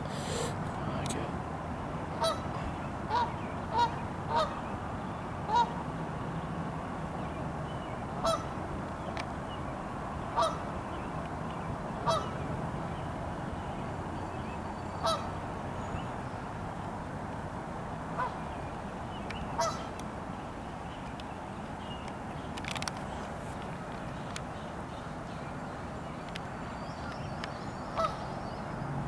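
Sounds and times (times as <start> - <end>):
geese honking: 2.2 - 4.5, 8.2 - 8.5, 10.4 - 10.6, 12.0 - 12.4, 15.0 - 15.3, 18.2 - 18.4, 19.6 - 19.9, 28.0 - 28.2.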